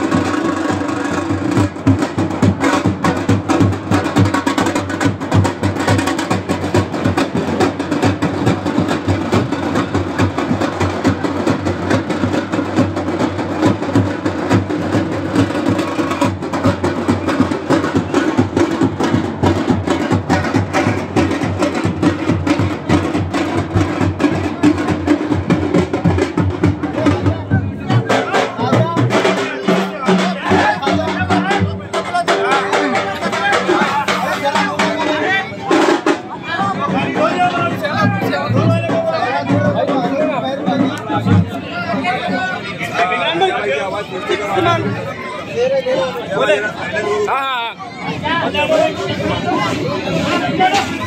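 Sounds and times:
music with fast dense drumming: 0.0s - 45.1s.

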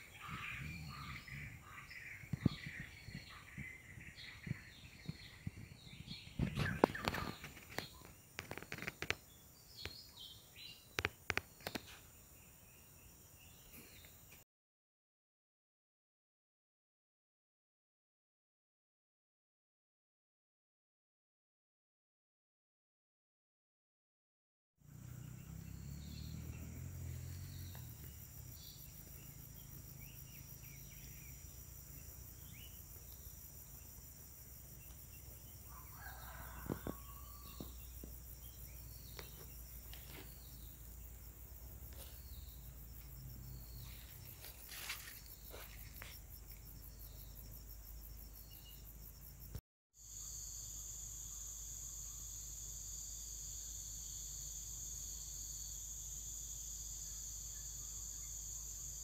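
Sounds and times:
insect chirping calls: 0.0s - 14.4s, 24.8s - 59.0s
insects droning: 0.0s - 14.4s, 24.8s - 59.0s.

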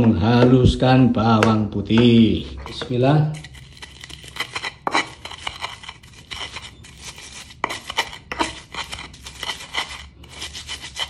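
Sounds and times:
pestle crushing in stone mortar: 0.0s - 11.0s.

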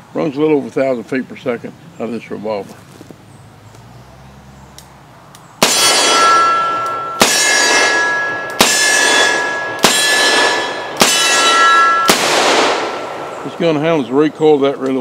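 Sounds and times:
long metallic ringing: 5.6s - 14.8s
revolver gunshots: 5.6s - 14.8s.

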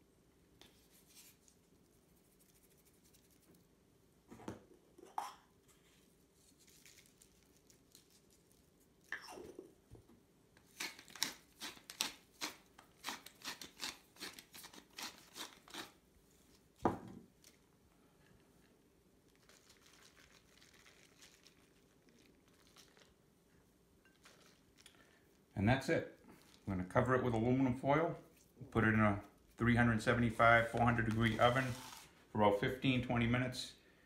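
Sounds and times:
pepper mill grinding: 10.7s - 16.0s
objects knocking on counter: 16.8s - 17.2s.

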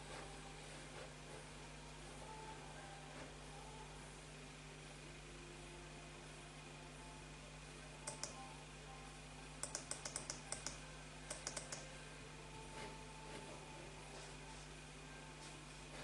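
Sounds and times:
faint steady hum: 0.0s - 16.0s
laptop keys tapping: 8.1s - 8.4s, 9.6s - 11.8s.

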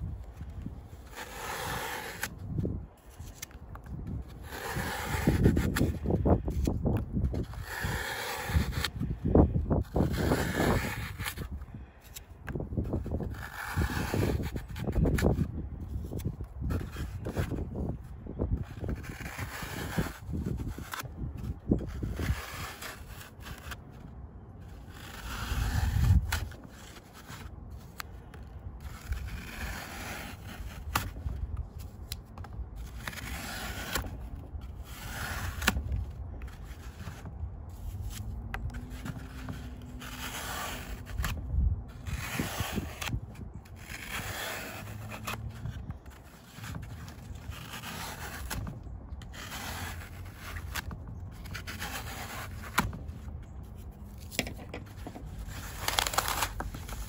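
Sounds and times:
loop tool scraping floral foam: 0.0s - 57.0s.

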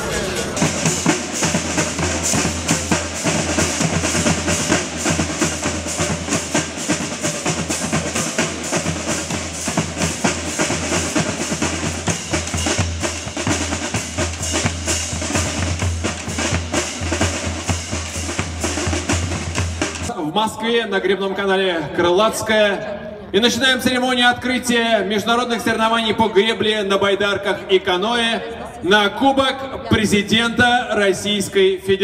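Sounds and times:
drum line playing fast: 0.0s - 20.7s.

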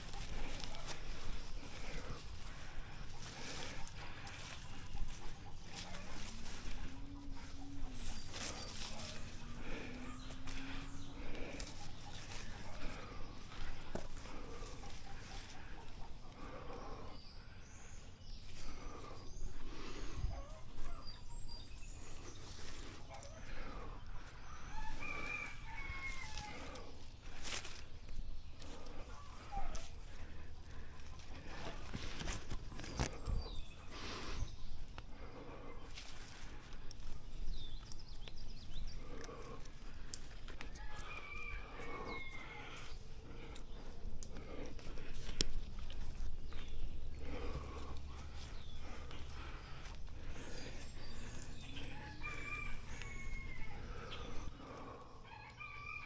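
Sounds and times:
hands and feet scraping tree bark: 0.0s - 17.1s, 18.4s - 55.1s
branches and leaves rustling: 0.0s - 55.1s
birds chirping: 0.0s - 56.0s.

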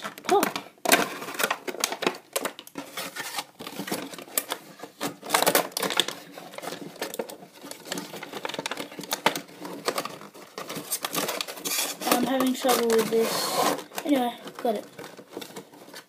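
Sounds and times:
plastic clicks taps and crinkles: 0.0s - 3.0s, 3.6s - 13.2s, 13.8s - 16.0s.

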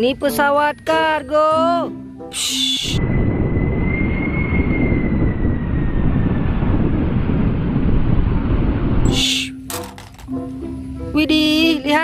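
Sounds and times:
jet airliner roar with whine: 2.3s - 10.0s.

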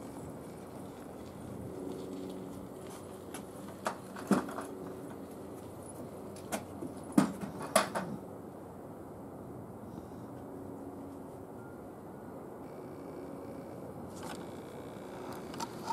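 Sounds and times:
distant jet engines humming: 0.0s - 15.9s.

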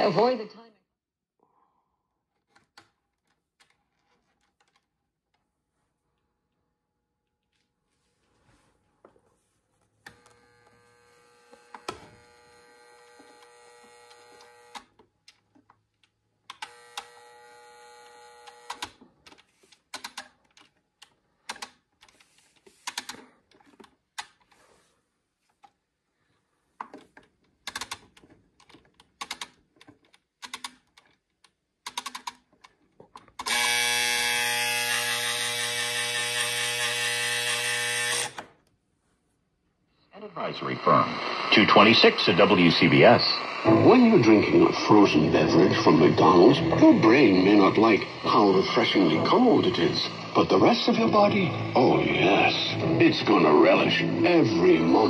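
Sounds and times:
alarm buzzer: 10.1s - 14.9s, 16.6s - 18.8s, 33.5s - 38.4s
clock knobs clicking and ticking: 13.0s - 17.2s, 18.0s - 24.6s, 26.8s - 33.8s.

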